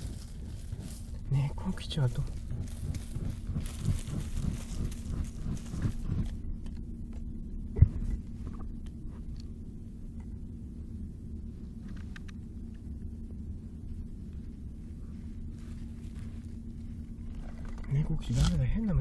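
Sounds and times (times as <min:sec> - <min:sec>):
cat scratching and rustling in soil: 0:00.0 - 0:06.4, 0:15.1 - 0:18.8
steady low rumble: 0:00.0 - 0:19.0.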